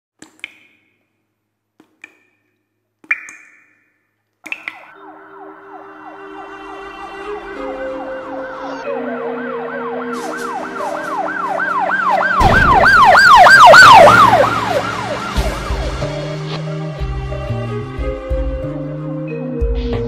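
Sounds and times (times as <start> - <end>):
siren yelping: 4.8 - 16.6.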